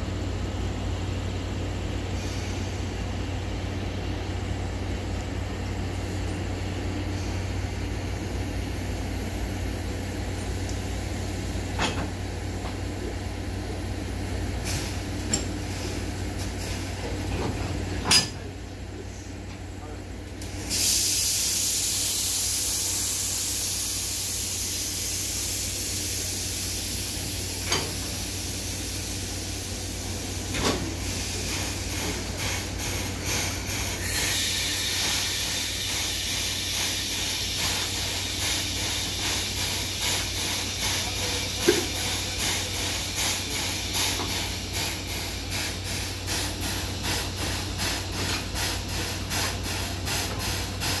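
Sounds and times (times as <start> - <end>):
air brake line hissing: 2.1 - 3.0, 7.0 - 7.6, 14.6 - 17.0, 20.4 - 51.0.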